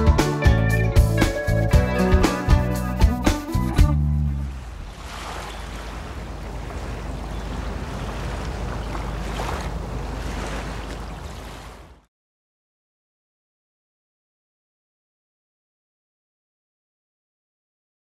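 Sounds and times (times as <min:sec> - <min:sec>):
waves lapping: 0:04.2 - 0:12.1.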